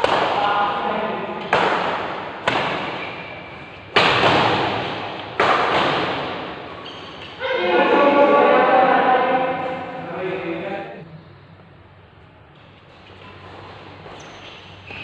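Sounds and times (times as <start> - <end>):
rackets hitting shuttlecock: 0.0 - 0.6, 1.4 - 7.4.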